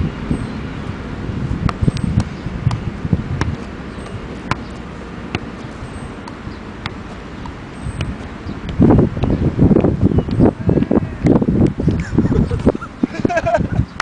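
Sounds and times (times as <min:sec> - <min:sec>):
wind rumbling on microphone: 0:00.0 - 0:14.0
ball tapping off foot: 0:01.6 - 0:12.0.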